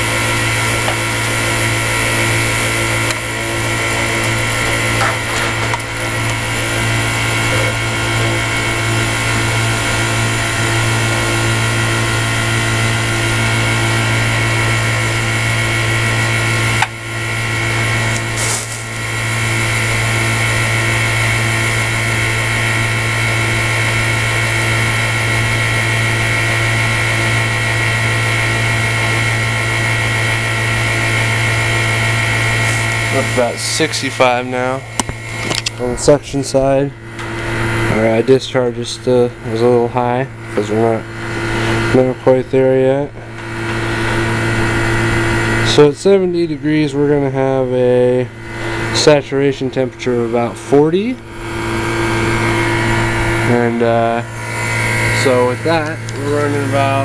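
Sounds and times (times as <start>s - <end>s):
heat pump humming: 0.0s - 57.0s.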